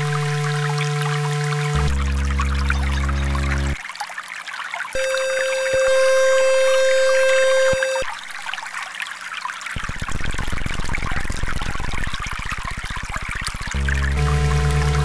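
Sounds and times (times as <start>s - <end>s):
low rapid buzzing pulse: 0.0s - 3.8s, 5.0s - 8.1s, 13.5s - 15.0s
synthesized mid-pitched tone: 0.0s - 3.8s, 5.0s - 8.1s, 13.8s - 15.0s
water trickling and pouring: 0.0s - 15.0s.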